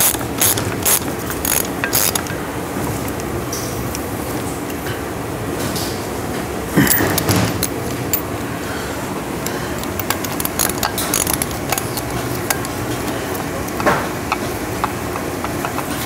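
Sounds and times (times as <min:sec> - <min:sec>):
hand ratchet clicking: 0:00.0 - 0:02.4, 0:09.4 - 0:16.0
steady background hum: 0:00.0 - 0:16.0.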